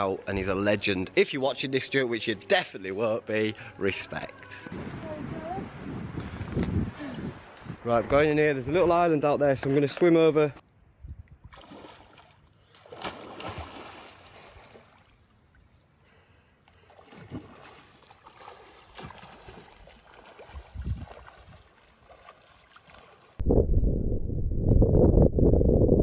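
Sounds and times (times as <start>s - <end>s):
sea water splashing and lapping: 11.4s - 23.4s.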